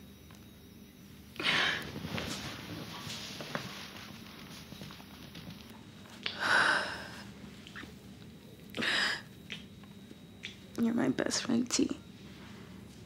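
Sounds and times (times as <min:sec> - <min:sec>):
woman sniffling: 0:01.4 - 0:01.9, 0:08.8 - 0:09.3.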